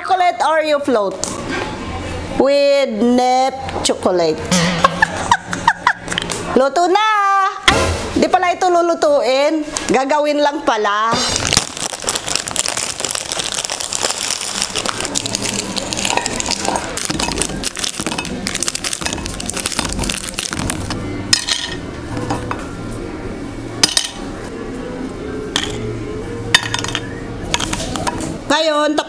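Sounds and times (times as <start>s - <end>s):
cookies clattering against glass: 11.5s - 21.8s, 26.6s - 28.2s.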